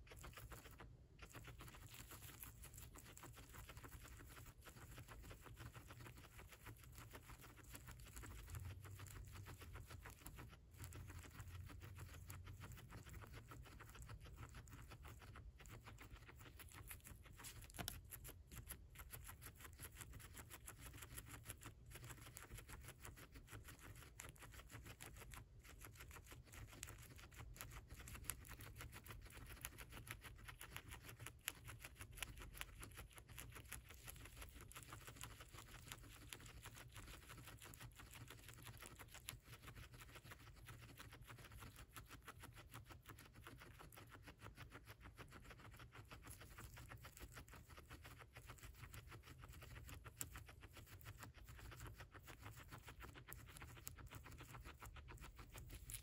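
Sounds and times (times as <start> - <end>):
guinea pig chewing: 0.0 - 56.0.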